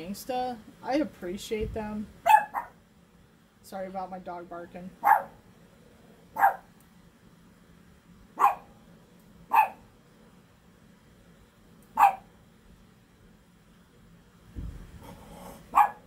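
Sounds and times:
dog barking: 0:02.2 - 0:02.8, 0:05.0 - 0:05.4, 0:06.4 - 0:06.7, 0:08.4 - 0:08.7, 0:09.5 - 0:09.9, 0:12.0 - 0:12.3, 0:15.7 - 0:16.0.

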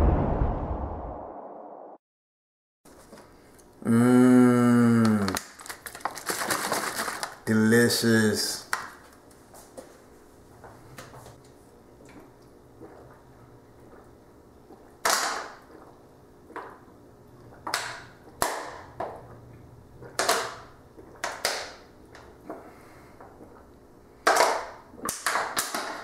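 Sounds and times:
plastic water bottle crackling: 0:05.2 - 0:07.5
low steady hum: 0:15.6 - 0:25.0.

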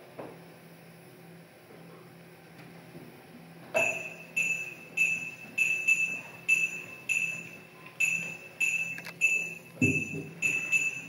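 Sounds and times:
small metal bell chime: 0:03.8 - 0:11.0.

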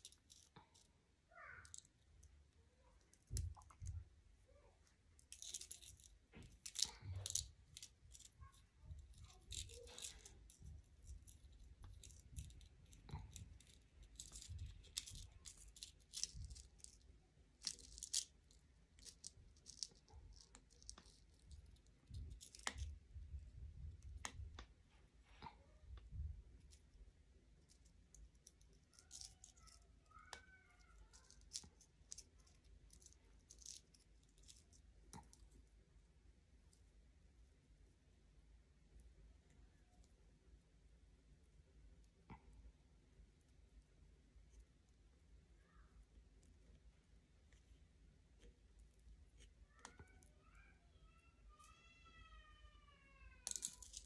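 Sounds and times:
beaded wire clicking and rustling: 0:00.0 - 0:24.8, 0:25.9 - 0:36.0, 0:53.2 - 0:54.0.

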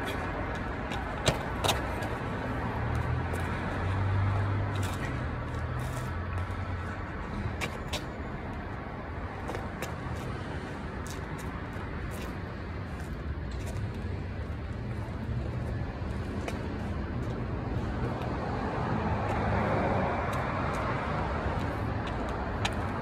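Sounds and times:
road traffic rumble: 0:00.0 - 0:23.0
vehicle passing: 0:01.6 - 0:08.1, 0:13.8 - 0:23.0.

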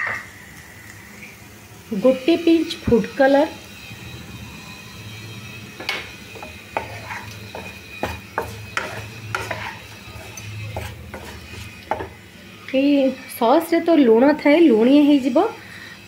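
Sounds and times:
wooden spatula scraping a pan: 0:05.8 - 0:12.2.

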